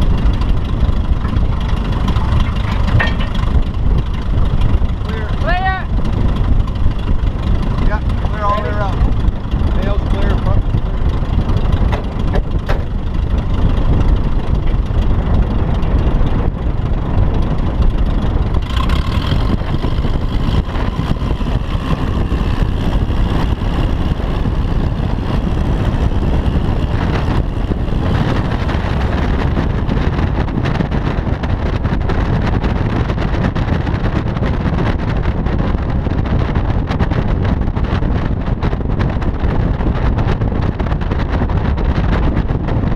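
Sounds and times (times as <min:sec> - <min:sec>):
car driving noise: 0:00.0 - 0:42.9
small plane engine overhead: 0:00.0 - 0:42.9
wind rush: 0:00.0 - 0:42.9.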